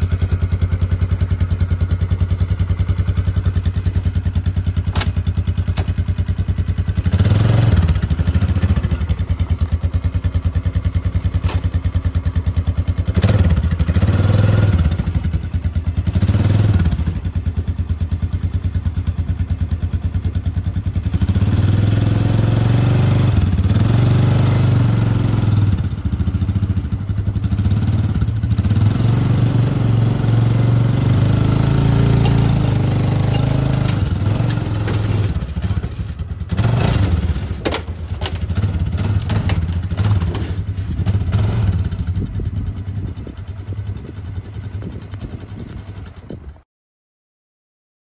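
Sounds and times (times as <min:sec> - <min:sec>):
quad engine running under throttle: 0:00.0 - 0:46.6
metal ramps clanking: 0:11.4 - 0:11.8, 0:31.3 - 0:41.5.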